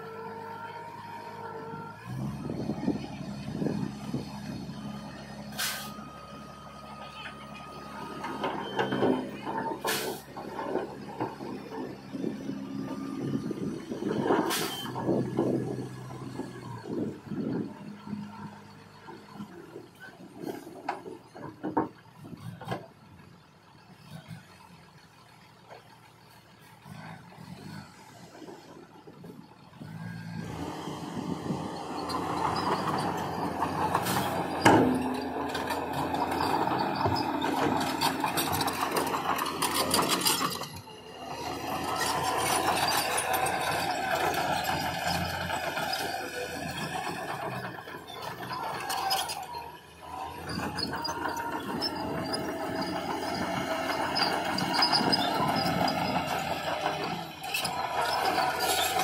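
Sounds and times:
heavy machinery engine: 0:00.0 - 0:59.0
high metallic squeals: 0:30.1 - 0:59.0.

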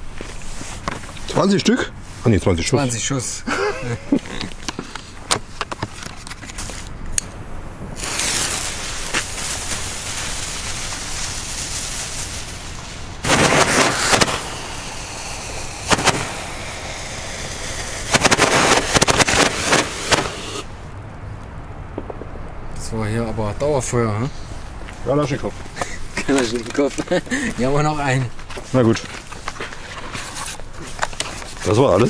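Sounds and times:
crackling firework shots: 0:07.2 - 0:22.6
roman candle hissing: 0:07.4 - 0:20.9.

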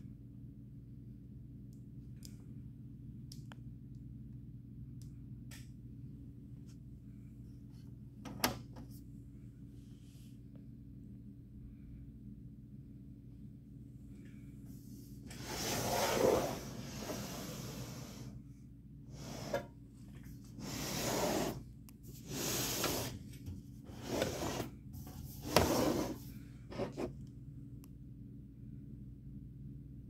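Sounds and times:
handling noise rubbing and scraping: 0:19.2 - 0:27.2.

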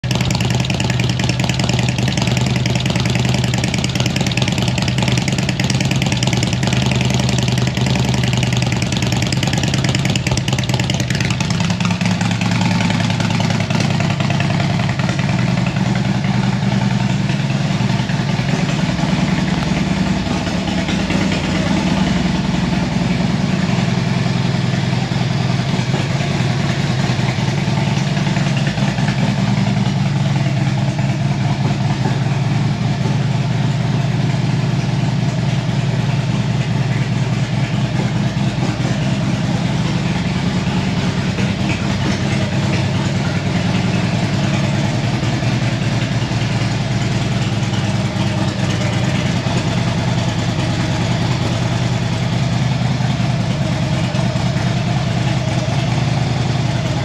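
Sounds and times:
motorcycle engine idling: 0:00.0 - 0:57.0.

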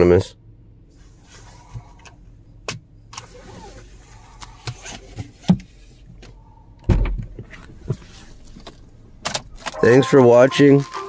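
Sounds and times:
car cabin hum: 0:00.0 - 0:11.0.

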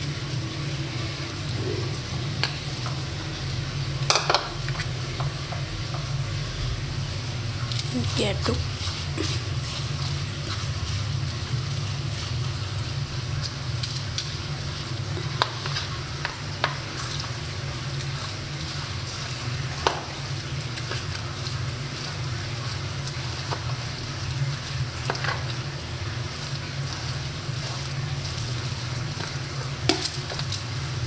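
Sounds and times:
low hum: 0:00.0 - 0:11.9.

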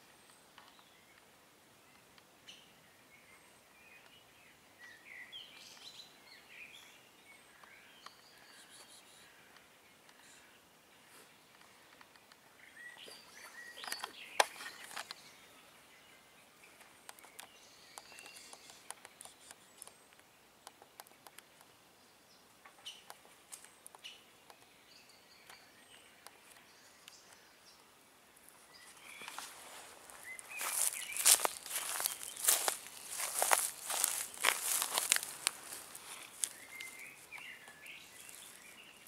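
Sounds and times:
bird chirps: 0:02.5 - 0:09.4, 0:12.6 - 0:20.2, 0:28.6 - 0:39.0
sharp clicks: 0:17.0 - 0:21.7
rustling footsteps: 0:28.4 - 0:39.0.

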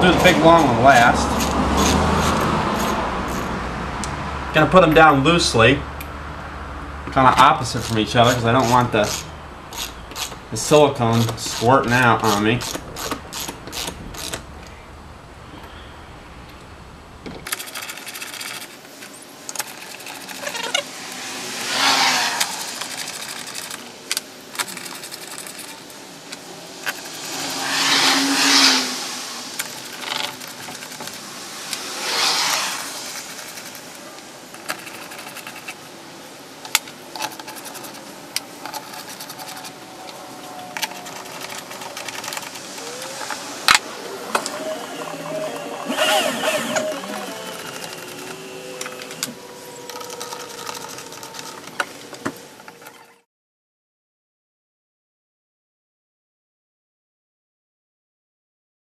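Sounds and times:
screws being driven: 0:00.0 - 0:03.5, 0:07.4 - 0:14.5, 0:17.5 - 0:23.8, 0:26.8 - 0:34.0, 0:40.8 - 0:51.7.

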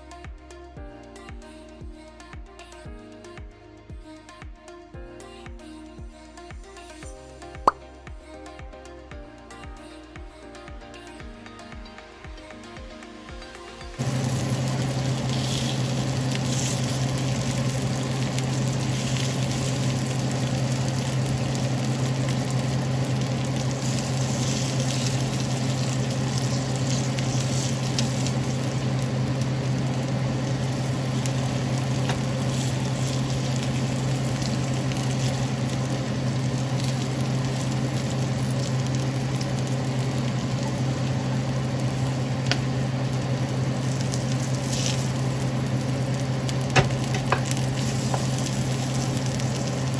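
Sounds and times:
meat sizzling on a grill pan: 0:14.0 - 0:49.9
steady low hum: 0:14.0 - 0:49.9.

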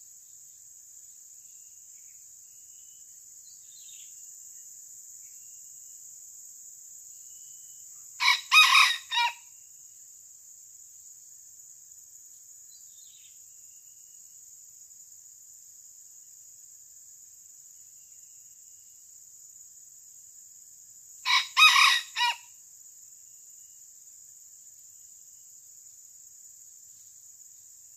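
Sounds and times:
high insect drone: 0:00.0 - 0:27.9
rooster crowing: 0:08.2 - 0:09.4, 0:21.3 - 0:22.5.

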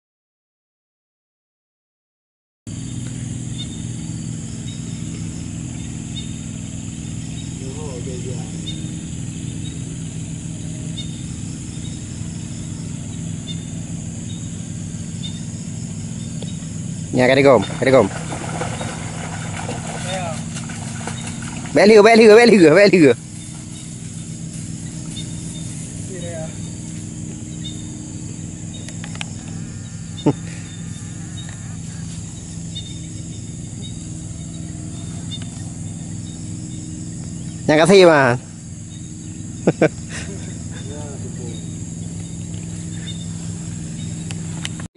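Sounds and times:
insects chirring: 0:02.7 - 0:44.9
low hum: 0:02.7 - 0:44.9
small engine running steadily: 0:02.7 - 0:44.9
steady high hiss: 0:21.8 - 0:30.8.

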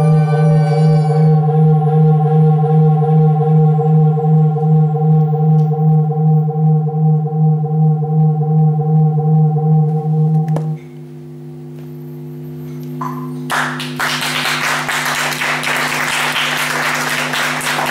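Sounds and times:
synthesizer drone: 0:00.0 - 0:17.9
click: 0:05.2 - 0:05.8, 0:09.9 - 0:10.9
audience applauding: 0:13.5 - 0:17.9.

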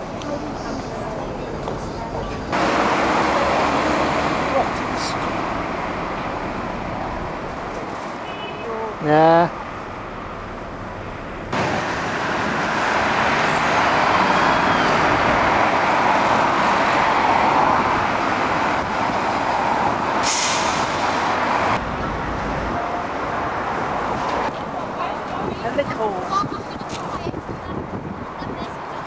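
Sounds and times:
road traffic: 0:00.0 - 0:29.0
air brakes hissing: 0:20.2 - 0:21.2.

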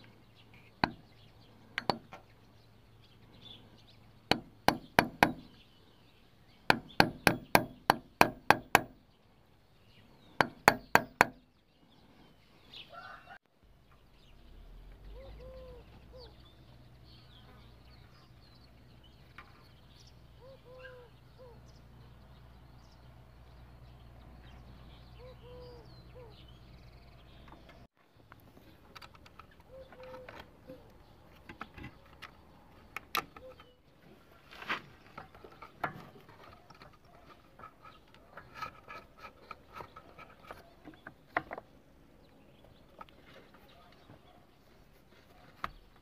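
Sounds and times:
hammer tapping metal punch: 0:01.8 - 0:02.2, 0:04.3 - 0:05.6, 0:06.7 - 0:09.0, 0:10.4 - 0:11.4
bird calling: 0:14.2 - 0:23.0, 0:24.4 - 0:27.9, 0:29.4 - 0:32.3, 0:33.1 - 0:33.9.

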